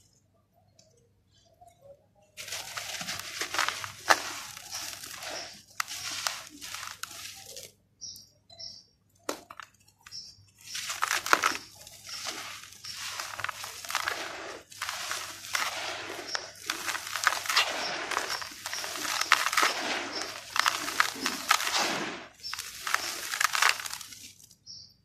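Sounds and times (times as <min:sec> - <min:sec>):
soil pouring into plastic basin: 0:02.4 - 0:07.7, 0:10.6 - 0:24.6
dirt crunching between hands: 0:02.4 - 0:08.2, 0:09.3 - 0:24.5.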